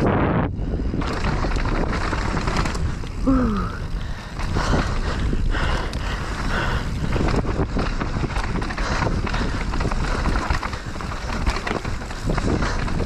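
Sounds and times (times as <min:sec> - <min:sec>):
bike rattling over bumps: 0:00.0 - 0:13.0
bike tyres rolling over dirt: 0:00.0 - 0:13.0
wind rumble on microphone: 0:00.0 - 0:13.0.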